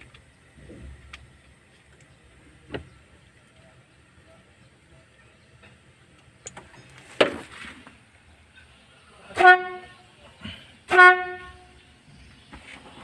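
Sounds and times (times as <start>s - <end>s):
electric horn blasts: 9.3s - 10.0s, 10.9s - 11.8s.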